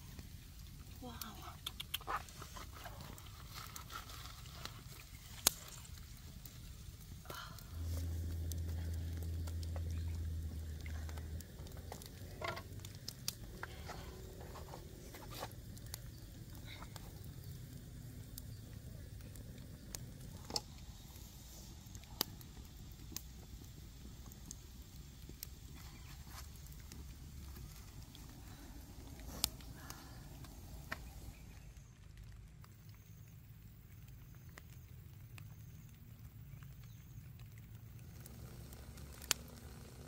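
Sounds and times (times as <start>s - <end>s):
wood fire crackling and popping: 0.0s - 40.0s
low rumble: 6.1s - 31.9s.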